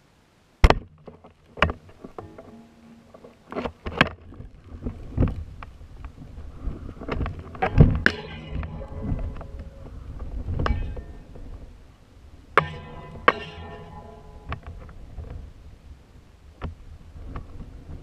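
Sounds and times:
low rumble: 0:07.7 - 0:11.9.

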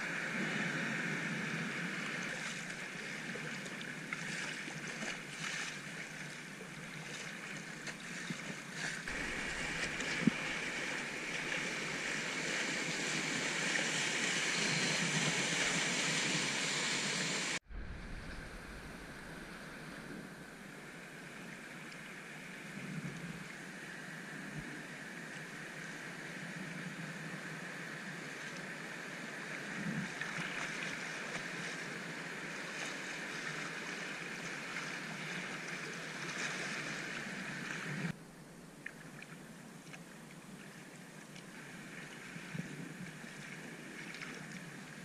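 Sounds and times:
flowing water: 0:00.0 - 0:38.2, 0:38.8 - 0:45.0
kayak hull in waves: 0:00.0 - 0:38.2, 0:38.8 - 0:45.0
paddle stroke splashes: 0:02.2 - 0:20.4
rushing whitewater: 0:08.8 - 0:21.8.

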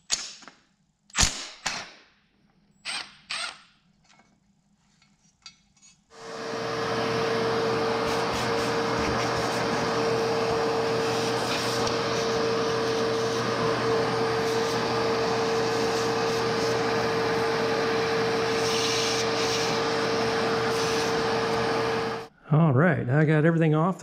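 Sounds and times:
shop vacuum whining: 0:06.1 - 0:22.3
toothbrush brushing engine: 0:07.7 - 0:22.2.

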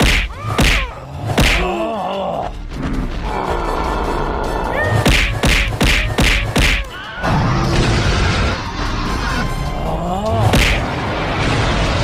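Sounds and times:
cartoon punch hits: 0:00.0 - 0:01.6, 0:05.0 - 0:06.9
background music: 0:00.0 - 0:12.0.

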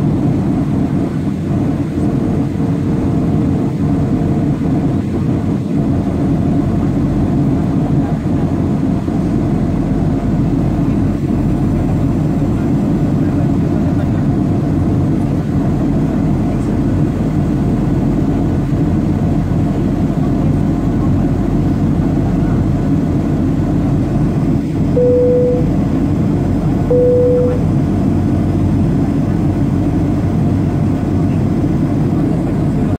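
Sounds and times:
airliner cabin rumble: 0:00.0 - 0:32.9
short cabin chime tones: 0:25.0 - 0:25.8, 0:26.9 - 0:27.8.

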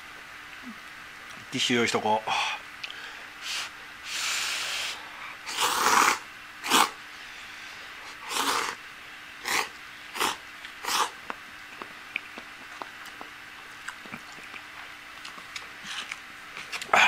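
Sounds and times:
person slurping noodles: 0:03.4 - 0:07.0, 0:08.1 - 0:08.8, 0:09.4 - 0:11.2.

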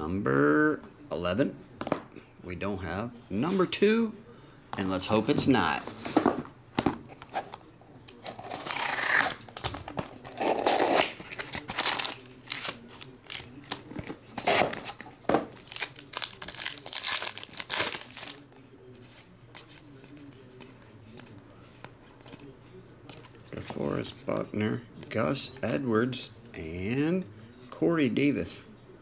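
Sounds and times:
cards rustling: 0:04.8 - 0:22.4
foil packs crinkling and tearing: 0:08.3 - 0:18.5.

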